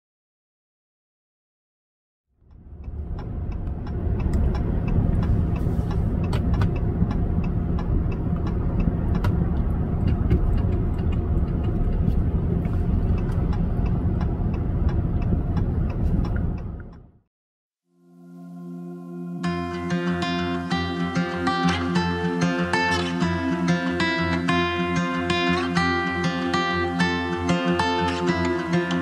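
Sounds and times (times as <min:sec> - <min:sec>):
steady ticking: 0:02.4 - 0:17.1.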